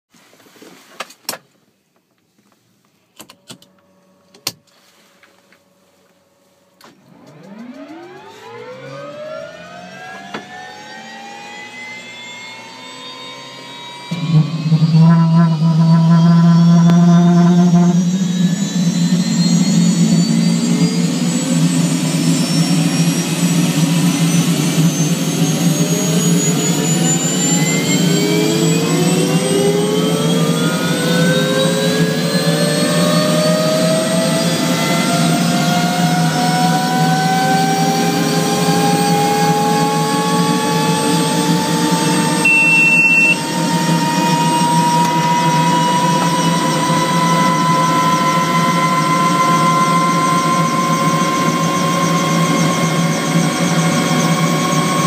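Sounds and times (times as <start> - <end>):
low engine drone: 3.4 - 55.0
turbine starter whine rising: 6.3 - 55.0
pulsing beep: 42.2 - 43.4
steady tone: 42.2 - 43.5.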